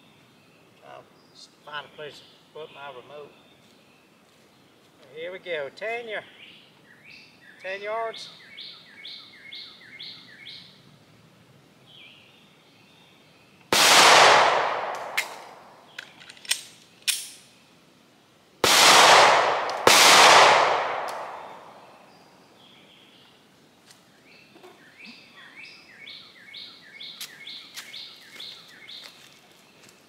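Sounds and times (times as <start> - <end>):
birds chirping: 0.0 - 11.0, 11.8 - 17.8, 20.4 - 30.0
pistol shots echoing: 13.7 - 15.8, 18.6 - 21.9.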